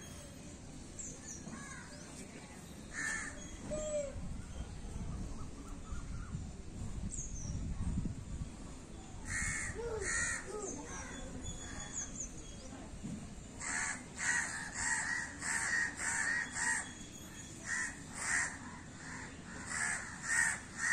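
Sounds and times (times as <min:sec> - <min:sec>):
crow cawing: 0:13.6 - 0:16.9, 0:17.7 - 0:20.9.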